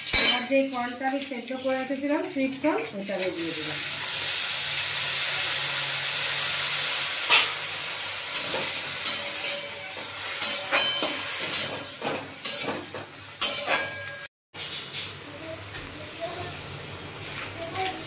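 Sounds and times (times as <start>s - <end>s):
corn sizzling in hot oil: 0.0s - 18.0s
metal spatula scraping a pan: 7.2s - 7.7s, 8.3s - 15.1s.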